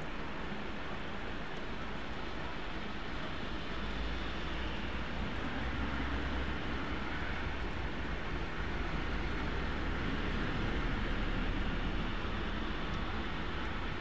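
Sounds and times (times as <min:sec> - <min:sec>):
heavy rain on a vehicle: 0:00.0 - 0:14.0.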